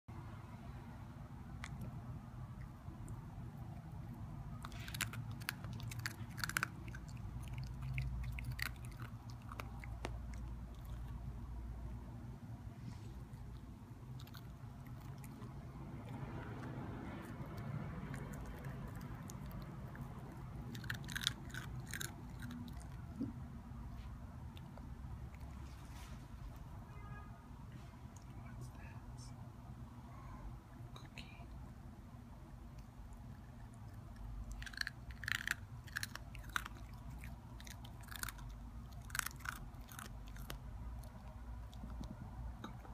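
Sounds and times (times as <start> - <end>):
puppy crunching cereal: 3.5 - 11.3, 13.1 - 23.3, 33.2 - 42.9.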